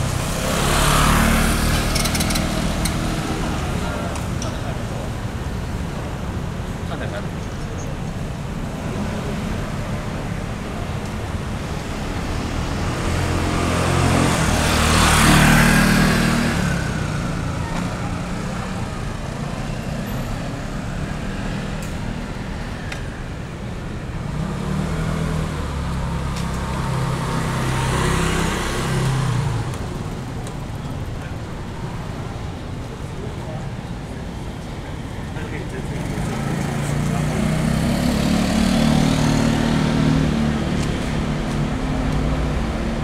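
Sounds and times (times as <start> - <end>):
background traffic hum: 0.0 - 43.0
vehicles passing close by: 0.0 - 43.0.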